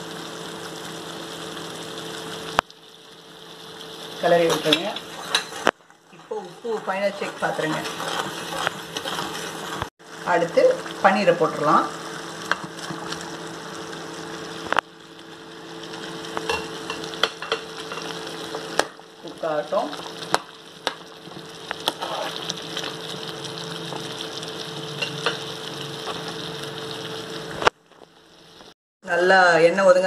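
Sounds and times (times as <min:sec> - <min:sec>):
gravy bubbling and sizzling: 0:00.0 - 0:30.0
spatula stirring: 0:04.2 - 0:09.9, 0:20.0 - 0:23.0.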